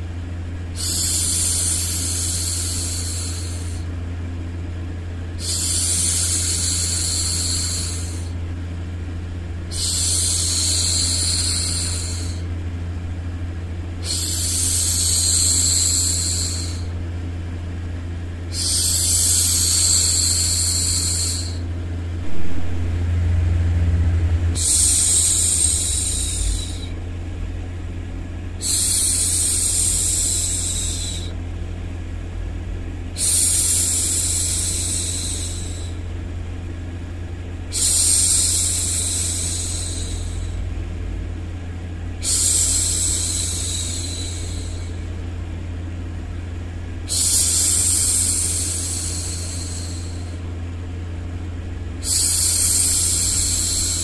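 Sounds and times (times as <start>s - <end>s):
low white noise rumble: 0.0s - 54.0s
woman shushing: 14.0s - 17.0s, 18.5s - 21.7s, 24.6s - 27.0s, 28.6s - 31.4s, 33.2s - 36.0s, 37.7s - 40.6s, 42.2s - 45.2s, 47.1s - 50.5s, 52.0s - 54.0s.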